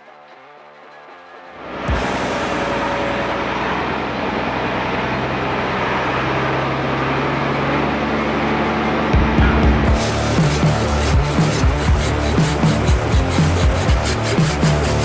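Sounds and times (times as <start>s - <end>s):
diesel truck engine running: 1.6s - 15.0s
music with strong beat: 1.9s - 2.8s, 9.2s - 15.0s.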